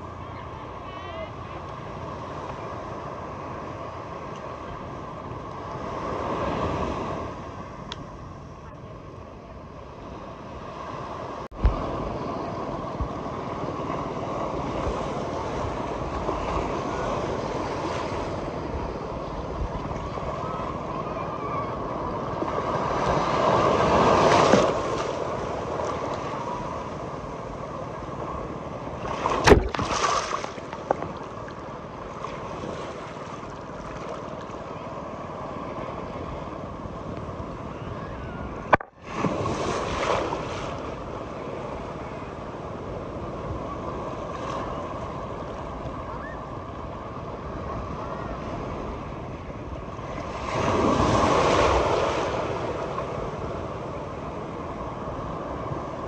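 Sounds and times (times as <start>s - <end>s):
sea waves washing on shore: 9.6s - 56.0s
wind noise on microphone: 10.2s - 27.6s, 35.5s - 56.0s.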